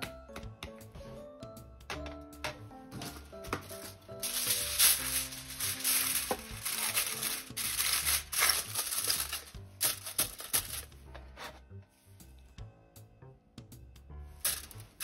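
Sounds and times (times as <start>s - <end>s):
soft background music: 0.0s - 15.0s
aluminium foil crinkling: 3.7s - 10.9s.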